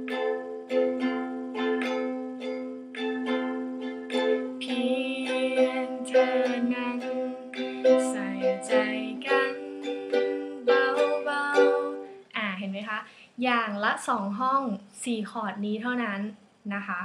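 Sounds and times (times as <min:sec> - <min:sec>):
ukulele strumming chords: 0:00.0 - 0:12.2.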